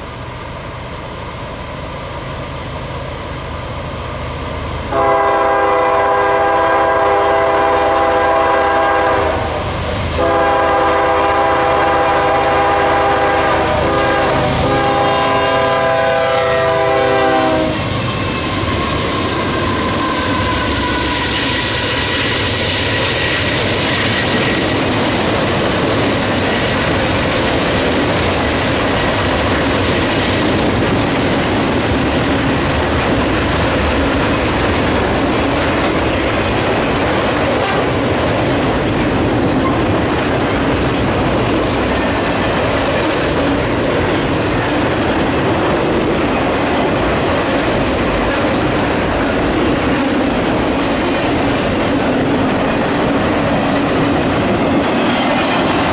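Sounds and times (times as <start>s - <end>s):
diesel locomotive engine rumble: 0.0s - 55.9s
train rail clatter: 4.7s - 55.9s
locomotive air horn blasts: 4.9s - 21.6s.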